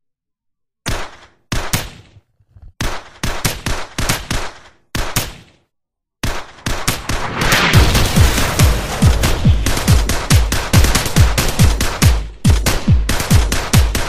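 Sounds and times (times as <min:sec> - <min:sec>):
rapid sharp bangs: 0:02.8 - 0:14.0.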